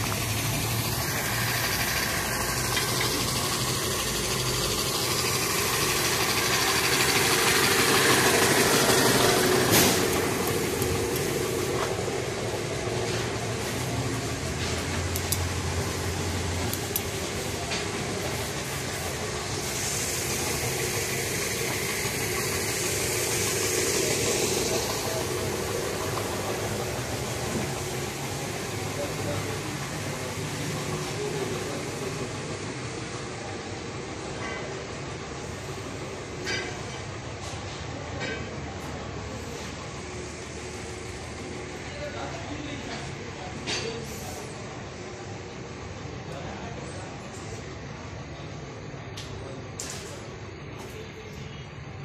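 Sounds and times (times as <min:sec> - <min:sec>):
welding arc hissing: 0:00.0 - 0:32.0
air compressor running: 0:00.0 - 0:46.4
spray gun hissing: 0:17.1 - 0:28.5.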